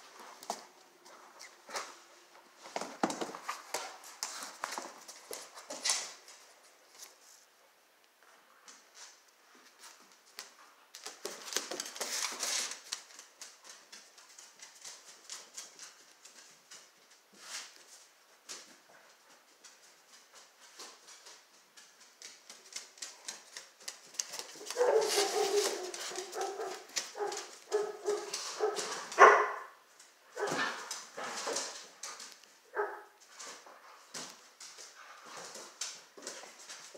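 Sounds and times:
dogs barking: 0:24.6 - 0:29.7.

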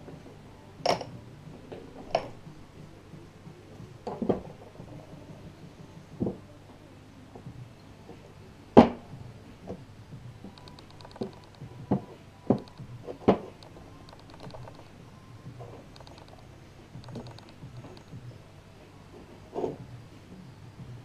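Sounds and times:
faint fast high ticking: 0:10.5 - 0:11.9, 0:12.5 - 0:18.5.

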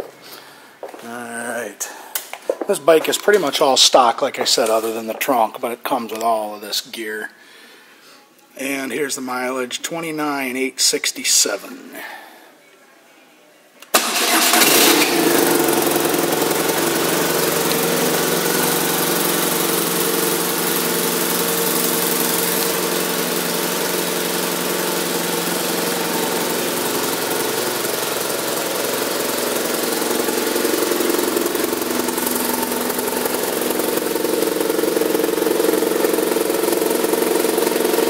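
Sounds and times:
motorcycle engine starting and idling: 0:13.9 - 0:38.0.

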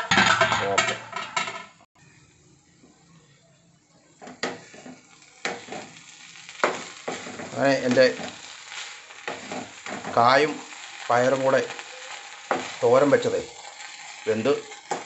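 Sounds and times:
metal pan lid clattering: 0:00.0 - 0:01.8
spatula scraping in a pan: 0:04.2 - 0:15.0.

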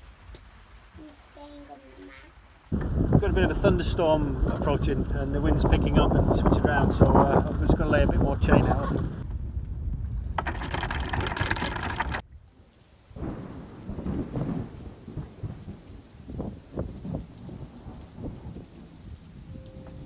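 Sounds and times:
rain: 0:00.0 - 0:20.0
thunder rumbling: 0:02.7 - 0:12.2, 0:13.1 - 0:20.0
wind buffeting: 0:02.7 - 0:12.2
anchor chain clattering: 0:10.4 - 0:12.2.

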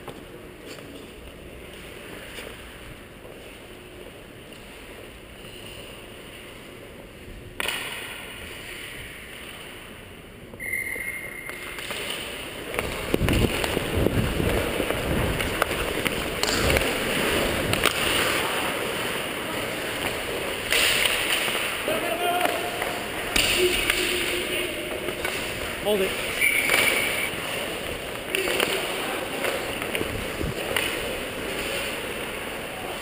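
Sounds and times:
hockey stick and puck knocks: 0:07.6 - 0:08.2, 0:17.7 - 0:18.5
skate blades scraping ice: 0:11.6 - 0:33.0.

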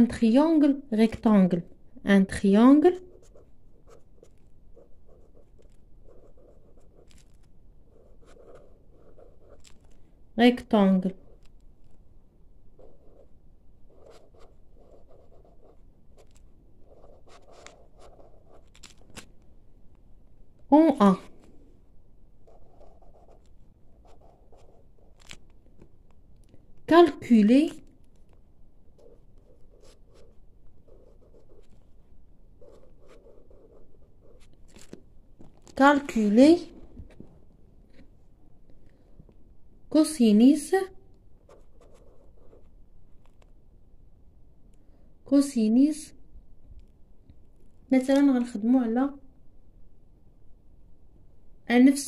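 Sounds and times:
pen scratching on paper: 0:02.8 - 0:10.0, 0:12.8 - 0:19.3, 0:22.4 - 0:25.5, 0:29.0 - 0:32.0, 0:32.6 - 0:35.0, 0:41.4 - 0:42.8.

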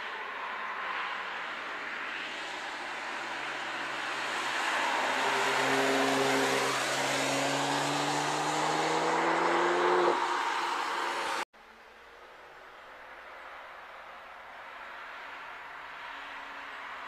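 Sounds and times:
tyres hissing on wet road: 0:01.3 - 0:09.1
car engine accelerating: 0:04.8 - 0:11.5.

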